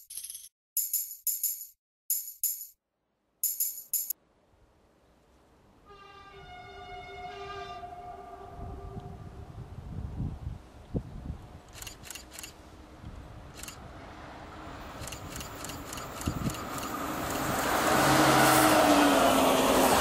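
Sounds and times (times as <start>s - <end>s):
train passing on rails: 11.8s - 20.0s.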